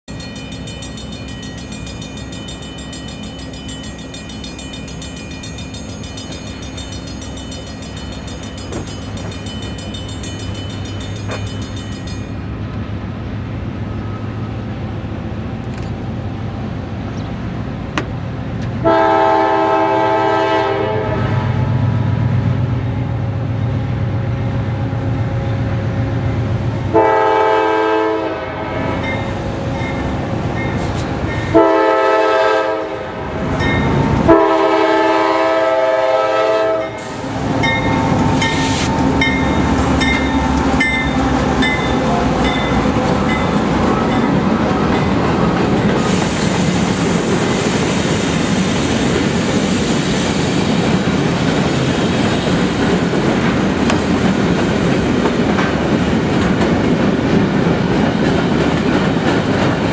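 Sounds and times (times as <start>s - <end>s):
diesel locomotive engine rumble: 0.1s - 59.9s
multi-note air horn blasts: 18.8s - 21.5s, 26.9s - 28.7s, 31.5s - 33.2s, 34.3s - 37.0s.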